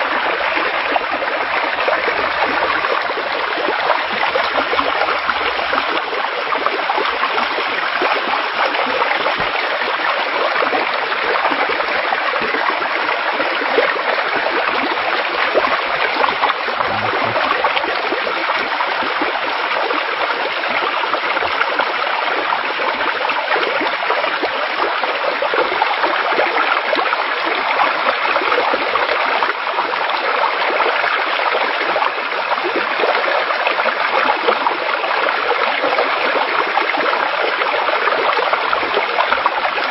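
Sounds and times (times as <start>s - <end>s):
floodwater rushing: 0.0s - 23.5s.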